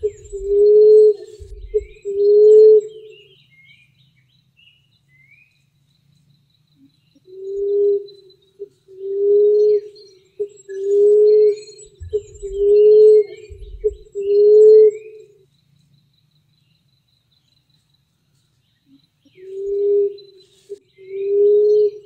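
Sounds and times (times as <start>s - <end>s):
dove cooing: 0.0s - 3.2s, 7.3s - 15.3s, 19.4s - 22.0s
small birds chirping: 0.0s - 22.0s.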